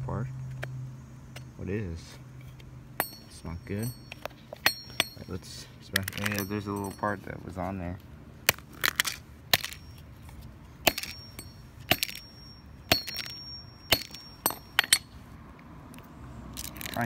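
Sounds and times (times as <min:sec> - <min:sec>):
hammer striking phone on concrete: 0:03.0 - 0:05.4, 0:10.8 - 0:15.1.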